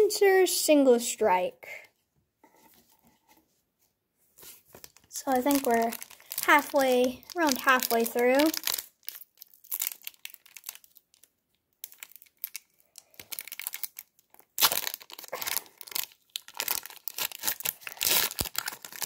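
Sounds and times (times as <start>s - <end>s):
foil wrapper crinkling and tearing: 4.4s - 19.0s.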